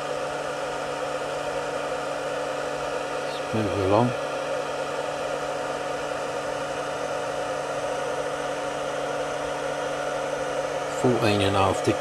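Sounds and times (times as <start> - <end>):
power inverter whir and hum: 0.0 - 12.0
thin electrical whine: 2.2 - 4.2, 5.1 - 12.0.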